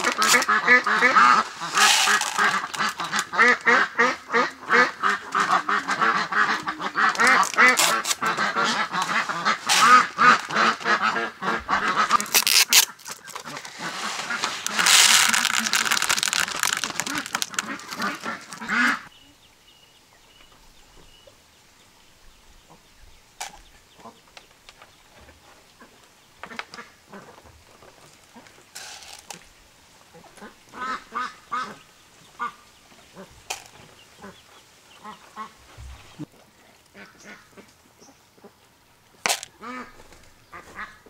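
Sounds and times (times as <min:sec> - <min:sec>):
seeds pouring into plastic bowl: 0:00.0 - 0:03.8, 0:07.0 - 0:11.0, 0:11.9 - 0:19.0, 0:28.7 - 0:29.5, 0:33.5 - 0:33.8, 0:39.2 - 0:39.5
ducks quacking: 0:00.0 - 0:19.1, 0:30.1 - 0:36.3, 0:36.9 - 0:38.6, 0:39.3 - 0:41.0.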